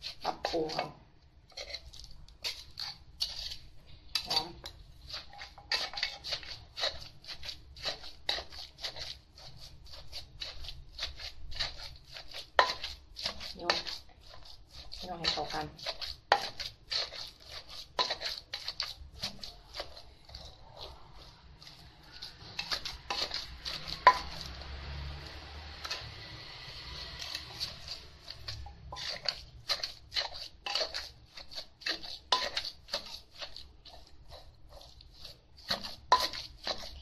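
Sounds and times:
pestle pounding in a mortar: 5.1s - 20.5s, 21.6s - 24.8s, 27.2s - 37.0s.

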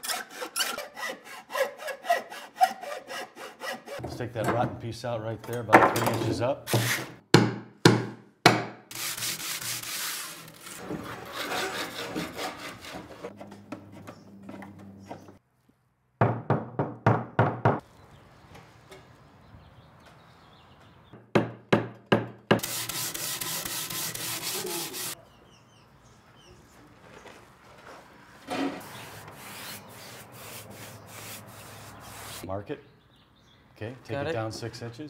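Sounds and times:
hand saw sawing wood: 0.0s - 4.0s, 8.9s - 13.4s, 22.5s - 25.2s, 28.5s - 32.5s
rubbing and rasping on wood: 0.0s - 4.0s, 8.9s - 13.3s, 22.6s - 25.2s, 28.5s - 32.5s.

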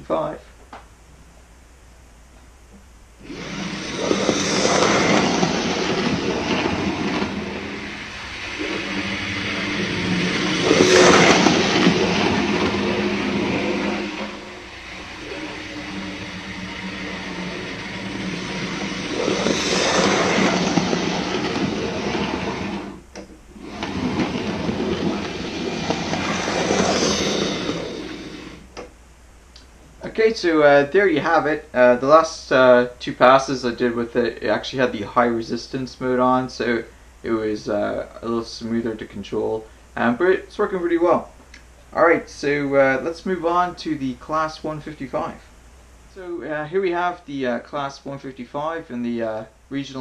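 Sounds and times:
model train motor hum: 3.2s - 28.8s
wheels clattering over rails: 3.2s - 28.8s.

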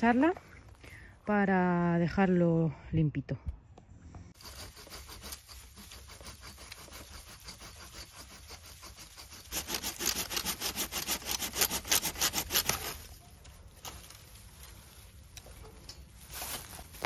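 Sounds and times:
hand saw cutting branch: 4.4s - 13.2s.

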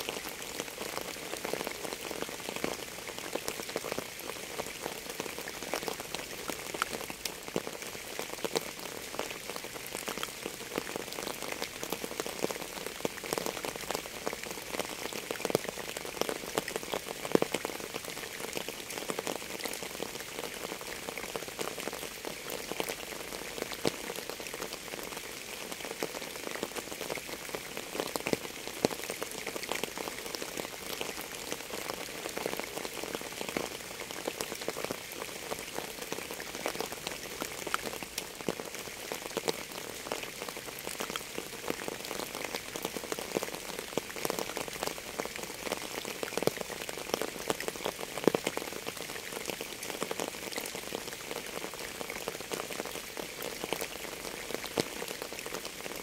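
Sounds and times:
rain on a hard surface: 0.0s - 56.0s.

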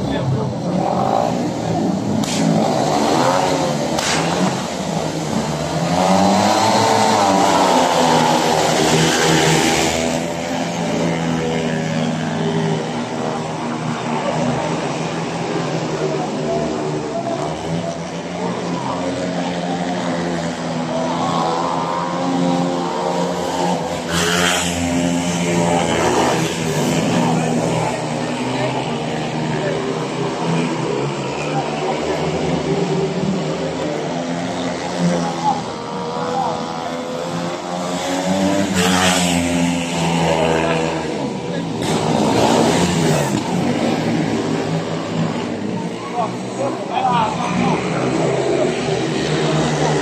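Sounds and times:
motorcycle engines revving: 0.0s - 50.0s
sharp cracks: 3.9s - 4.6s.

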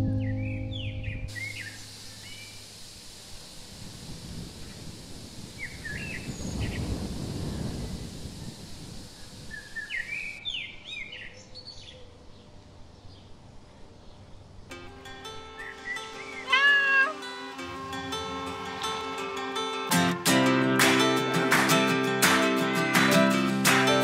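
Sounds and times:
small birds chirping: 0.0s - 2.7s, 4.6s - 14.5s, 15.5s - 18.3s
steady hiss: 1.3s - 10.4s, 14.7s - 22.3s
low rushing noise: 17.2s - 21.4s.

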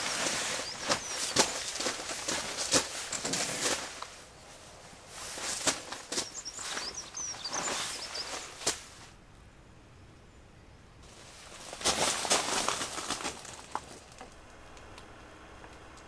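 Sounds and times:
boots crunching on gravel: 0.0s - 4.2s, 5.1s - 9.0s, 11.1s - 14.2s
small birds chirping: 0.0s - 9.1s.

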